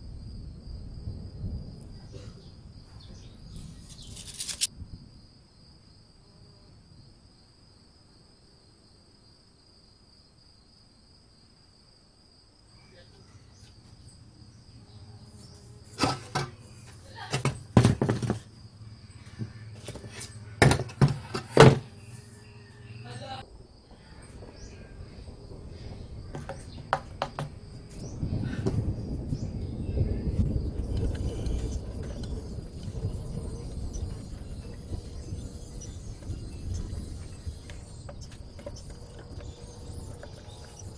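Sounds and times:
crickets chirping: 0.0 - 40.9
knocks on metal cover: 17.3 - 18.4, 20.6 - 21.8, 26.3 - 27.5.

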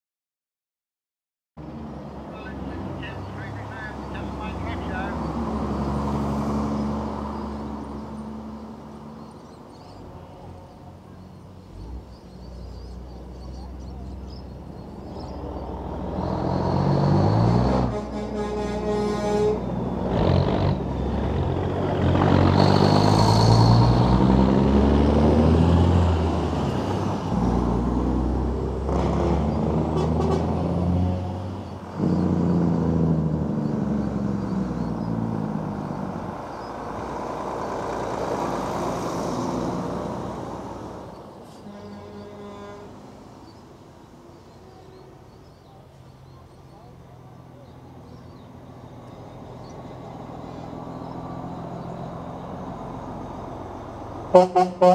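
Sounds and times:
diesel trucks driving past: 1.6 - 54.9
truck horn: 17.2 - 20.8, 28.9 - 31.5, 41.5 - 43.2, 54.3 - 54.9.

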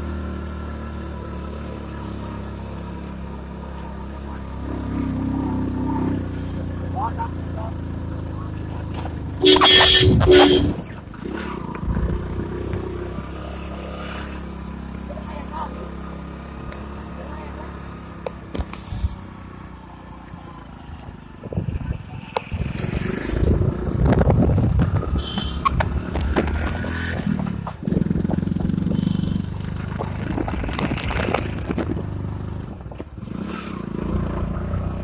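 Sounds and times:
motorcycle engine running: 0.0 - 13.4, 14.4 - 35.0
wind noise on microphone: 21.4 - 26.5, 30.0 - 33.3.

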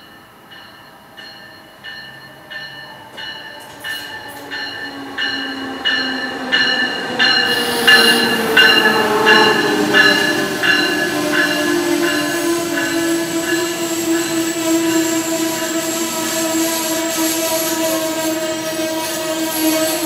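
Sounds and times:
train bell ringing: 0.0 - 20.0
train whine falling in pitch: 1.6 - 20.0
train hiss: 6.5 - 20.0.

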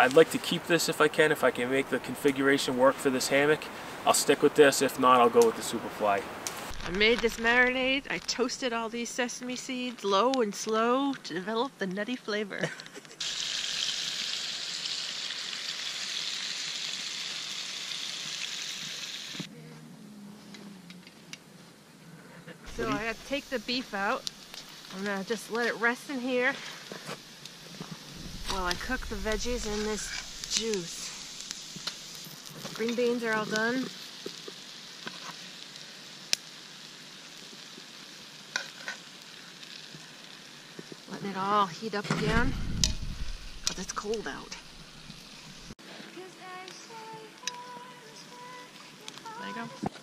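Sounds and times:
meat sizzling in a skillet: 6.4 - 11.0, 13.0 - 19.5, 22.7 - 50.0.

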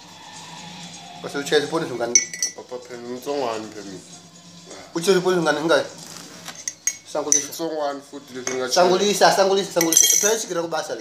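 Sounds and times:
spoon clinking on metal tin: 2.1 - 2.6, 6.5 - 7.6, 9.8 - 10.5.

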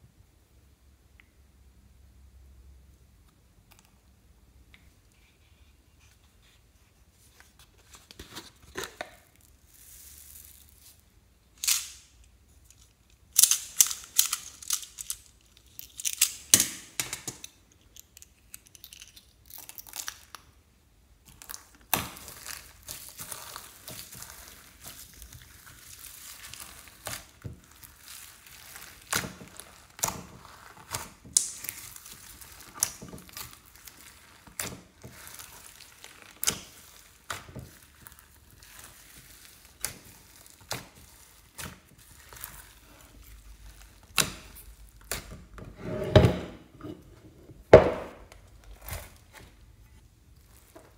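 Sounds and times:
foam beads pouring: 9.4 - 11.0
slime crunchy crackling: 21.2 - 45.3.

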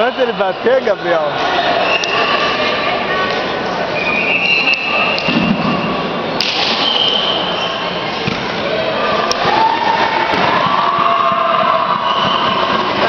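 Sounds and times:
distant voices in a hall: 0.0 - 13.0
sharp slaps: 6.4 - 6.9.

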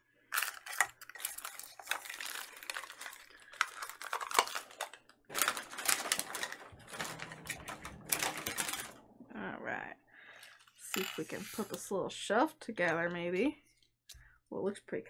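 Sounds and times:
plastic packaging crinkling: 0.3 - 9.0.

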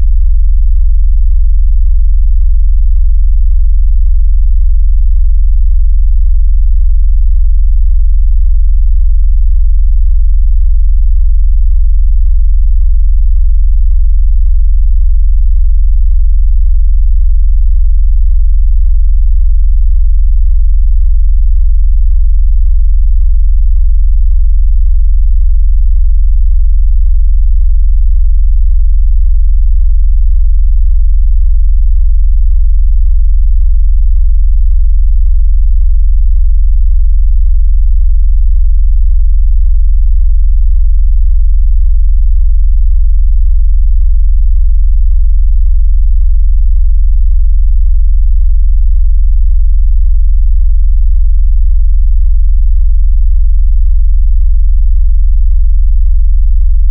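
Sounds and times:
deep synthesized bass tone: 0.0 - 40.4.

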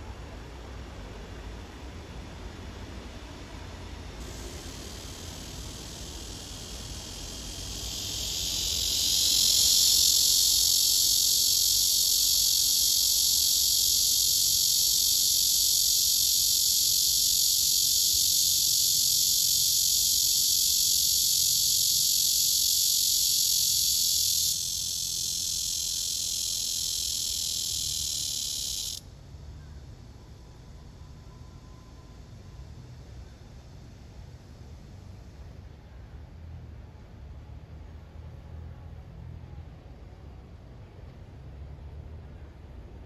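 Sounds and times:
cicada buzzing: 4.2 - 29.0.

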